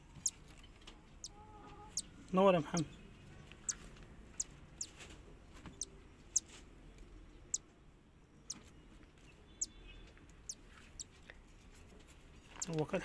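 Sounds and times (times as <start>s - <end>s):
chick peeping: 1.2s - 2.1s.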